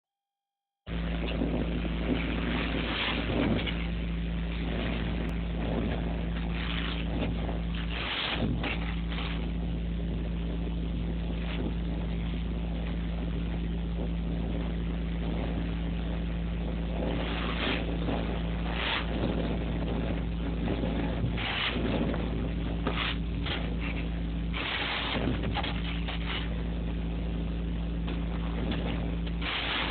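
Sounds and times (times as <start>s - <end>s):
low machine hum: 0.8s - 29.9s
vacuum hose rushing air and sand: 6.3s - 9.6s, 17.0s - 20.0s, 21.1s - 26.8s, 29.2s - 29.9s.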